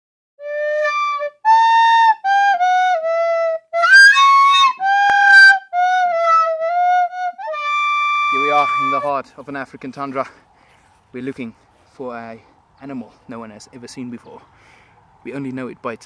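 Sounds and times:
solo flute-like woodwind melody: 0.4 - 9.2.

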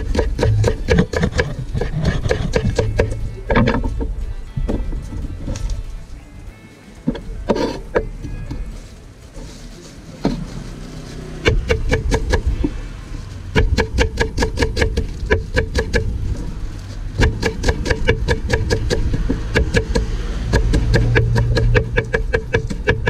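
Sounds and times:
low steady hum: 0.0 - 23.0
knife chopping on wooden board: 17.2 - 23.0.

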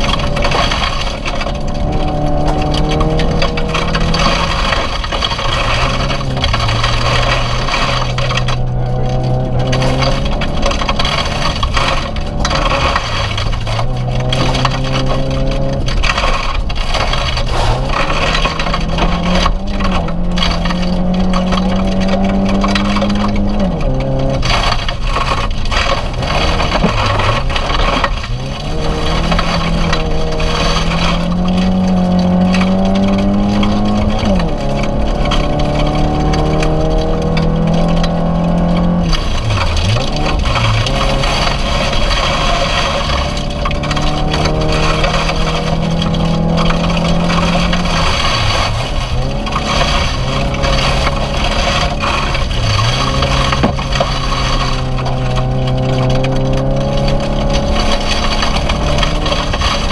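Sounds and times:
car engine revving: 0.0 - 59.9
gravel pelting car underside: 0.0 - 59.9.

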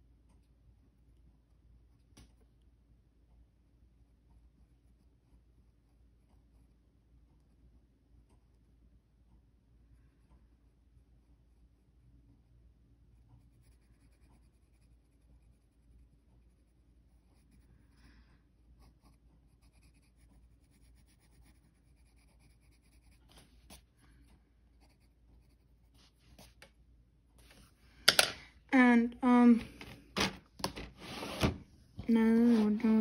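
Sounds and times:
pencil scratching on paper: 13.1 - 18.0, 18.8 - 26.6.

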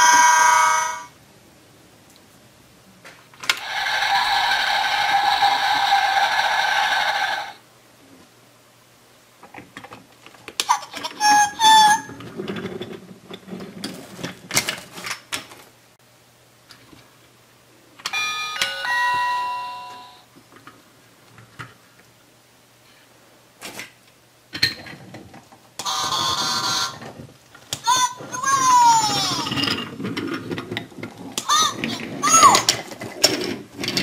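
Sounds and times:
electronic bell-like chime: 18.1 - 20.2
plastic gates clicking and clattering: 29.5 - 34.0.

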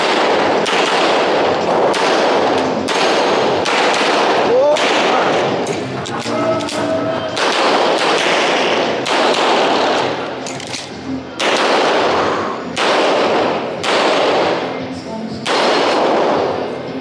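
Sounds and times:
fainter distant gunshots: 0.0 - 5.6, 7.4 - 10.2, 11.4 - 14.7, 15.4 - 16.6
handgun shots with ringing echo: 0.0 - 5.9, 7.4 - 14.8, 15.4 - 16.6.

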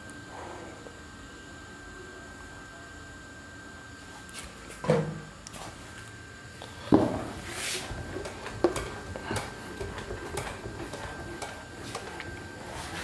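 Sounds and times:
duster rubbing on whiteboard: 7.4 - 8.0, 10.8 - 13.0.

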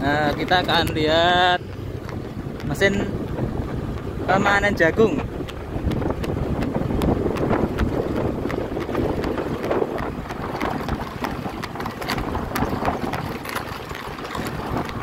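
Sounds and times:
low rumble: 0.0 - 15.0
wind buffeting microphone: 0.0 - 15.0
knocks and clicks: 5.1 - 15.0.

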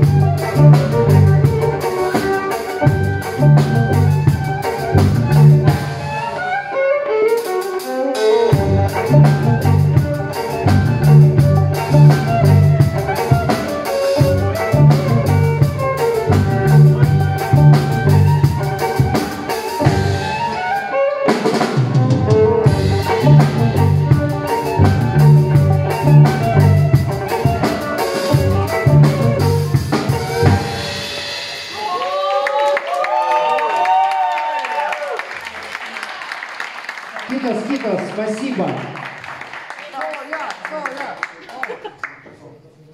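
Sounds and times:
drum kit: 0.0 - 6.6, 7.2 - 32.4
violin playing: 0.0 - 31.4
pulsing low bass line: 22.7 - 27.1.

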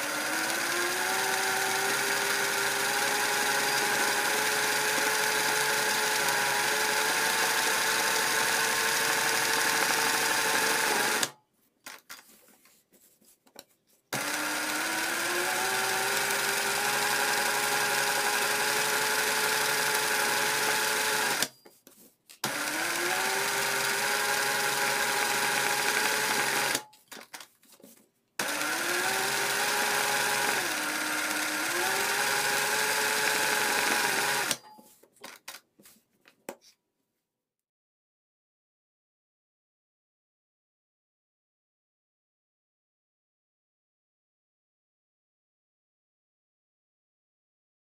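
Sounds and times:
industrial sewing machine stitching: 0.0 - 11.3, 14.2 - 21.5, 22.4 - 26.8, 28.4 - 34.6.

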